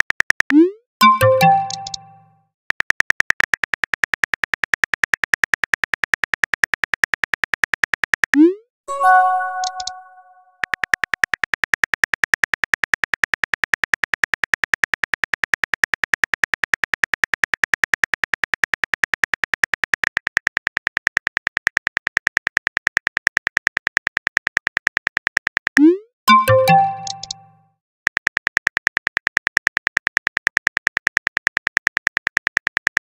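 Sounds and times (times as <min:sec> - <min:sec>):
phone keyboard typing clicks: 0:00.5 - 0:03.6, 0:09.4 - 0:11.3, 0:24.7 - 0:33.0.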